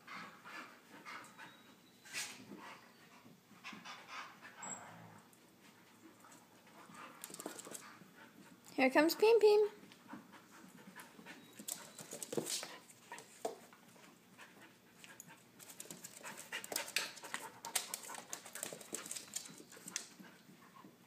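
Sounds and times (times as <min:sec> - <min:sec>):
dogs panting: 0:00.0 - 0:21.0
dogs scuffling: 0:05.4 - 0:21.0.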